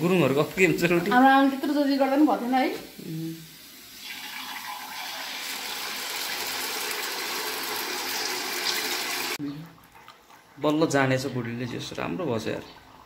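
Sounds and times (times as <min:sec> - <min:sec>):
batter sizzling in hot oil: 0:00.0 - 0:09.4.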